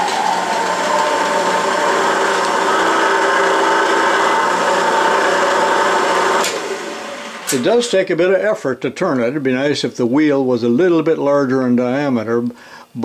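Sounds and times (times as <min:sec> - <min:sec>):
drill press humming: 0:00.0 - 0:07.9.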